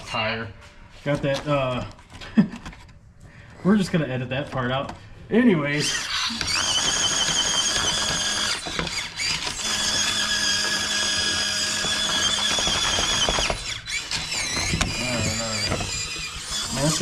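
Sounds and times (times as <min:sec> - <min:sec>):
electric drivetrain whining: 0:05.8 - 0:17.0.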